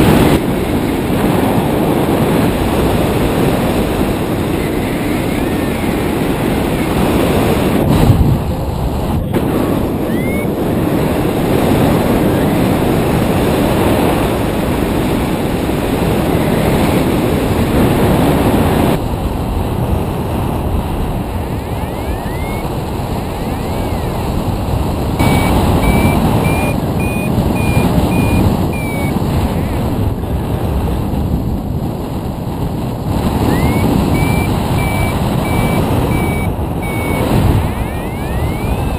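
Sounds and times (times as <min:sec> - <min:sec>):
wind rushing over microphone: 0:00.0 - 0:38.9
variometer high beeps: 0:10.0 - 0:10.5, 0:21.6 - 0:22.7, 0:23.4 - 0:24.2, 0:25.2 - 0:29.8, 0:33.4 - 0:38.9
short rising chirps: 0:21.9 - 0:22.6, 0:25.2 - 0:29.1, 0:33.4 - 0:38.9.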